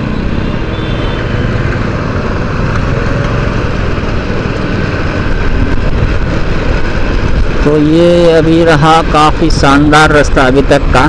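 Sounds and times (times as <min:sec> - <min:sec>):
motorcycle engine running: 0:00.0 - 0:07.9
wind rushing over microphone: 0:00.0 - 0:11.0.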